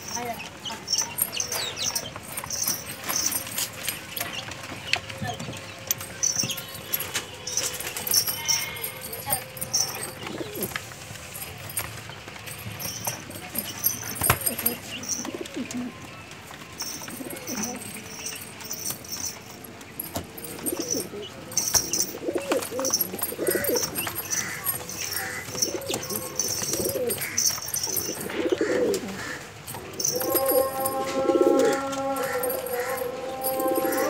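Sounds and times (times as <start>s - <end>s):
pigeons cooing: 9.5s - 11.0s, 12.8s - 16.1s, 16.8s - 34.0s.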